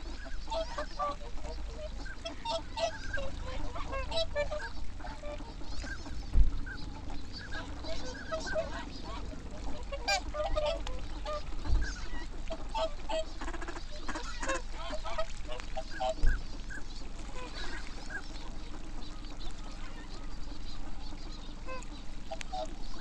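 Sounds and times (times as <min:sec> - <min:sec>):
ducks quacking: 0:00.0 - 0:23.0
swans honking and bugling: 0:00.0 - 0:23.0
low thump: 0:06.2 - 0:06.9.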